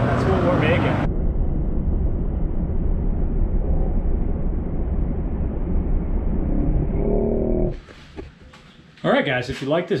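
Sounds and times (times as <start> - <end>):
loud low rumble: 0.0 - 7.8.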